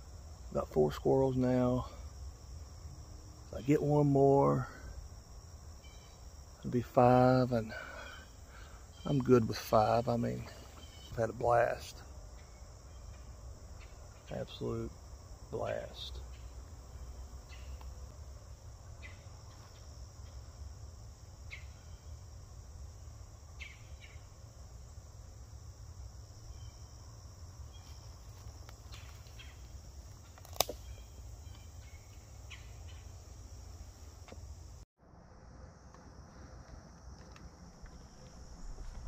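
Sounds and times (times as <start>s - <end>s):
insect chorus buzzing: 0.0s - 39.0s
sharp snap: 30.4s - 30.8s.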